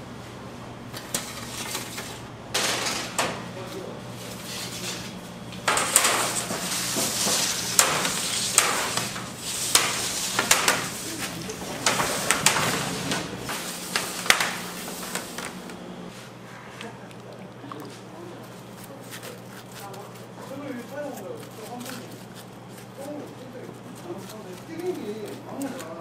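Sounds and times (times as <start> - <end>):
low machine hum: 0.0 - 26.0
scraping and rustling: 0.9 - 16.4, 18.0 - 26.0
sharp knocks and clatter: 5.6 - 15.5.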